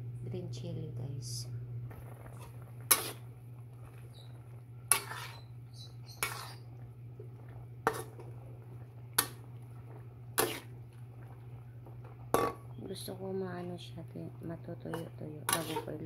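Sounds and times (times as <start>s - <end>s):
steady low hum: 0.0s - 16.0s
spatula scraping a pan: 2.3s - 3.3s, 4.9s - 6.8s, 7.8s - 8.3s, 10.3s - 10.8s, 14.9s - 16.0s.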